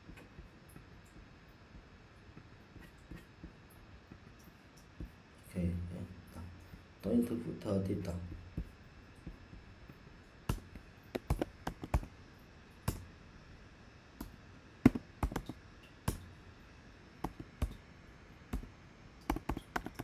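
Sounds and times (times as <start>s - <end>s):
computer keyboard typing: 10.5s - 12.1s, 14.9s - 16.2s, 17.2s - 17.8s, 18.5s - 20.0s.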